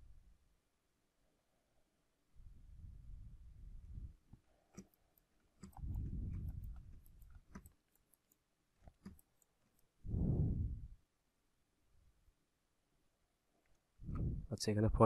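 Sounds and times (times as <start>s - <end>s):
computer clicks: 4.7s - 9.9s
low muffled rumble: 10.1s - 11.0s, 14.0s - 14.5s.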